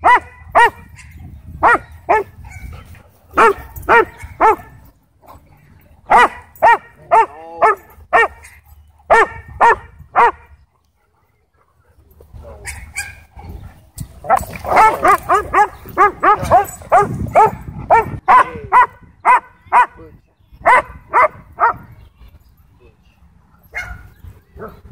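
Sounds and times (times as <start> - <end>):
dog barking: 0.0 - 2.7, 3.4 - 4.7, 6.1 - 10.4, 14.7 - 19.9, 20.6 - 21.8, 23.7 - 24.1.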